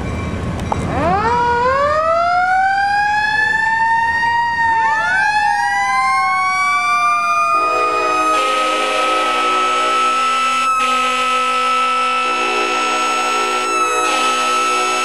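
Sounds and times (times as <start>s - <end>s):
mechanical sirens wailing: 0.9s - 15.0s
multi-note horn chord: 7.6s - 15.0s.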